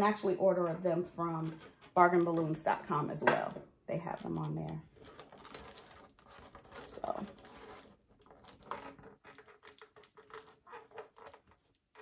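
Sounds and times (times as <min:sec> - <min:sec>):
craft materials rustling: 0:04.4 - 0:12.0.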